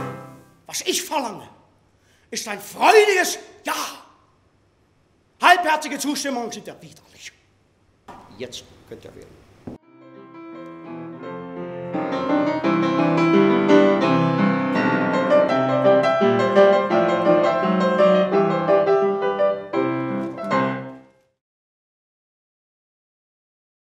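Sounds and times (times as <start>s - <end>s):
piano music: 0.0s - 0.6s, 9.8s - 21.2s.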